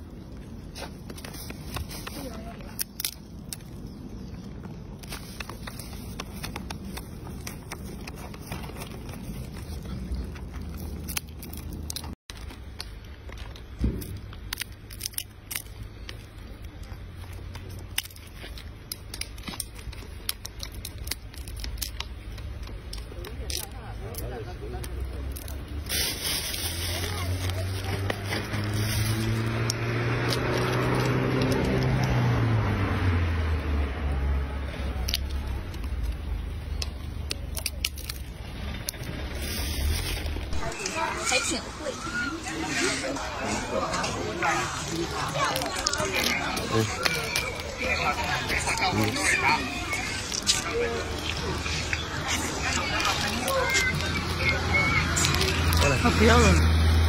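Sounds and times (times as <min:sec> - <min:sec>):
peanut shells cracking: 0:01.0 - 0:32.2, 0:34.8 - 0:41.4, 0:44.7 - 0:57.0
passing vehicle engine hum: 0:24.2 - 0:37.2, 0:38.1 - 0:57.0.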